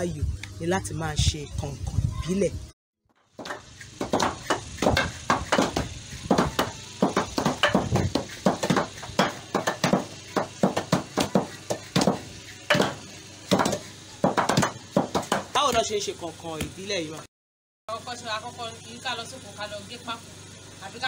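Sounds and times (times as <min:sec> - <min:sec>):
wooden mallets pounding plant stems: 0:03.3 - 0:16.0.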